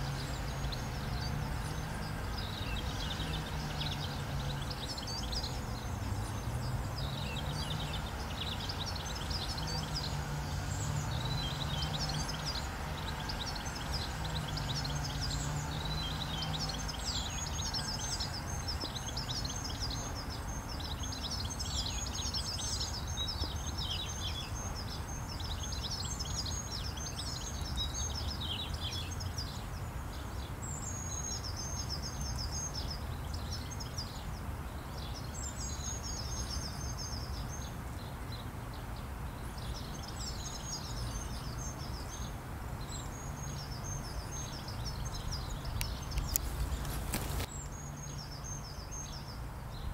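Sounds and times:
songbirds singing: 0:00.0 - 0:49.9.

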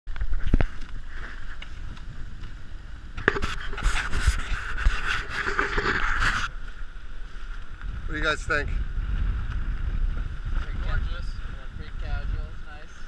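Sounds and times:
wind buffeting microphone: 0:00.1 - 0:13.0
camera rubbing against jacket: 0:00.2 - 0:02.5, 0:03.1 - 0:08.0.

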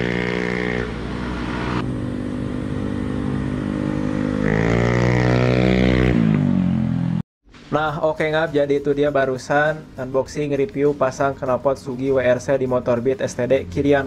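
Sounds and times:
scooter approaching: 0:00.0 - 0:07.2
scooter engine riding by: 0:00.0 - 0:07.2.

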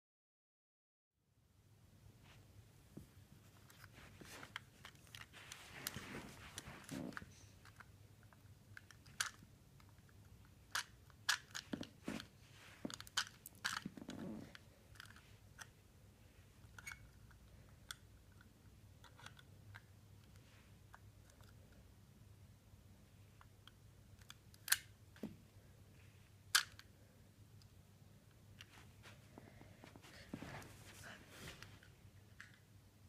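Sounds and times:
plastic pieces clicking and rattling: 0:07.6 - 0:10.1, 0:12.9 - 0:14.1.

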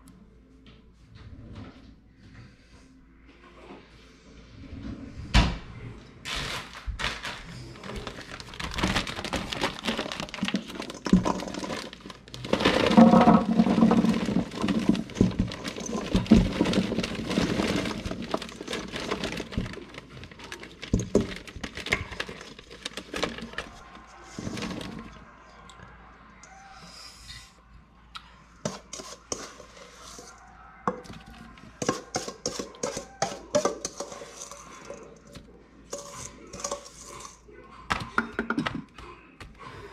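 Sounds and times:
plastic bag crinkling: 0:06.3 - 0:25.2
small fruit clattering: 0:07.2 - 0:25.2.

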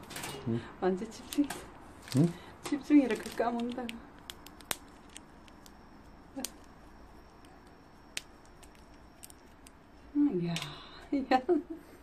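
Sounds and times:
chipmunk gnawing nut shell: 0:01.3 - 0:10.1.

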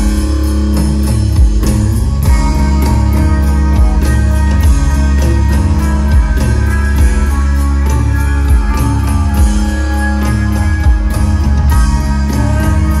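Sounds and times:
bass: 0:00.0 - 0:13.0
electric guitar: 0:00.0 - 0:13.0
steady drum beat: 0:00.0 - 0:13.0.

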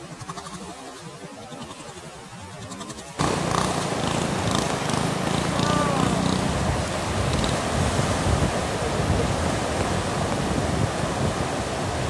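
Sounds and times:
turbulent water rushing: 0:02.9 - 0:12.0
wind buffeting microphone: 0:03.2 - 0:12.0.

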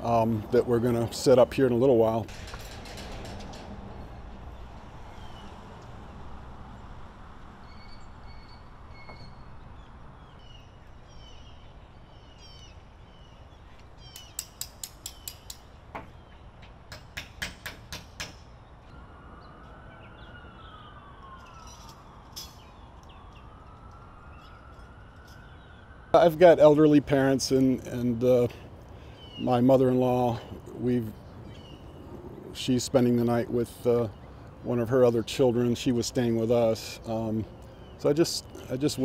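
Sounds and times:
birds chirping: 0:04.4 - 0:06.3, 0:07.6 - 0:16.9, 0:18.5 - 0:39.0
distant siren wailing: 0:18.5 - 0:39.0.

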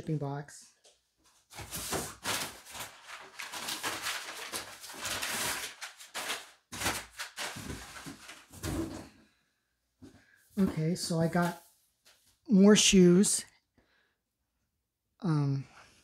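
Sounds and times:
packing paper rustling: 0:01.3 - 0:09.0.

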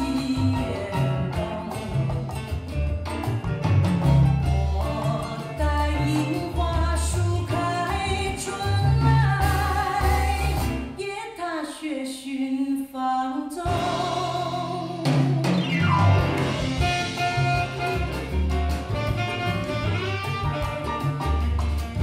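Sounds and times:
music with singing over loudspeakers: 0:00.0 - 0:02.8, 0:04.2 - 0:11.2.

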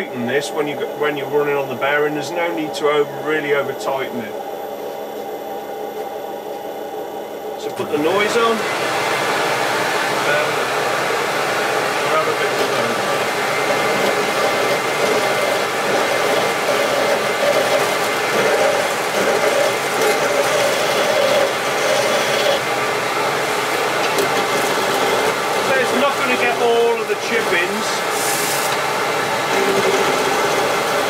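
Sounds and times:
lathe turning: 0:00.0 - 0:31.0
dust extractor air rushing: 0:06.7 - 0:31.0
gouge cutting wood: 0:11.8 - 0:22.7, 0:23.7 - 0:31.0.

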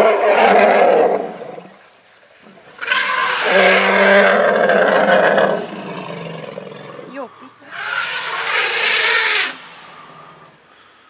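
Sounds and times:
elephant trumpeting: 0:02.8 - 0:10.6.

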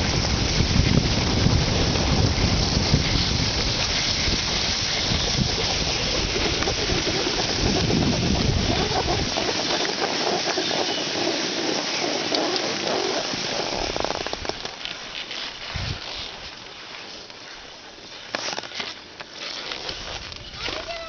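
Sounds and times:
wind buffeting microphone: 0:00.0 - 0:09.8, 0:15.7 - 0:16.2
skis scraping over snow: 0:00.0 - 0:21.0.

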